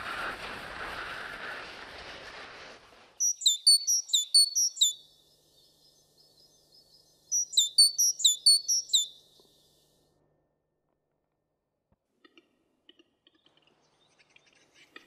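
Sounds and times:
songbird singing high notes: 3.2s - 9.4s.

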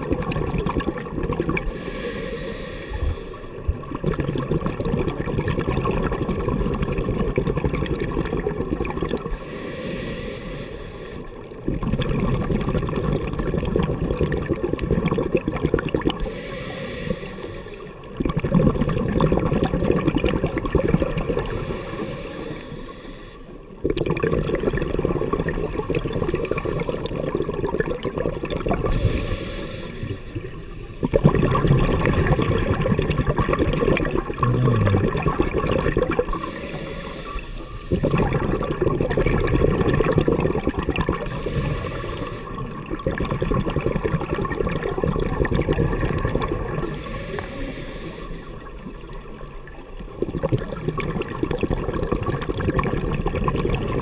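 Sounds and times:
exhaled air bubbling: 0.0s - 54.0s
regulator inhale hiss: 1.6s - 3.7s, 9.3s - 11.6s, 16.2s - 18.1s, 20.9s - 23.8s, 25.6s - 27.4s, 28.9s - 31.2s, 36.3s - 38.3s, 40.2s - 42.7s, 44.0s - 45.3s, 46.8s - 50.2s, 51.8s - 52.6s.

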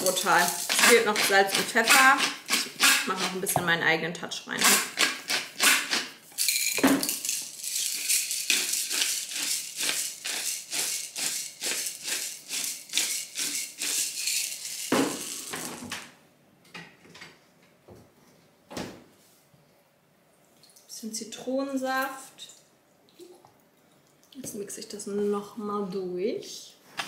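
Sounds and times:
spice dispenser rattling: 0.0s - 3.2s, 4.7s - 15.9s.

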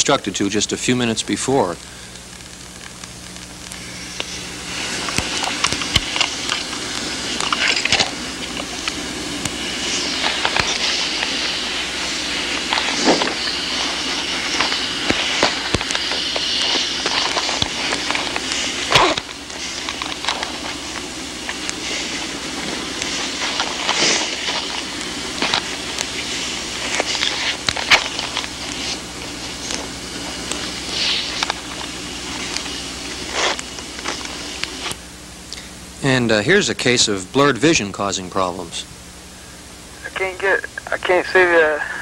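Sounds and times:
film hiss: 0.0s - 42.0s
low steady hum: 0.0s - 42.0s
crackling and sharp pops: 1.8s - 35.7s.

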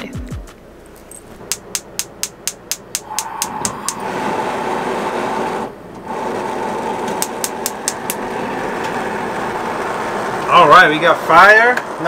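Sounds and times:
gas burner hissing: 2.9s - 10.3s
spark igniter clicking: 7.1s - 8.2s.

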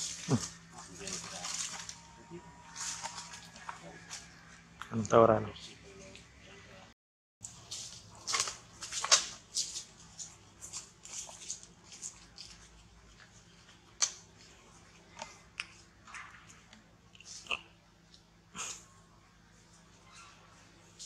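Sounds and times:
irregular crackles and rustles: 0.0s - 4.3s, 7.4s - 18.3s.

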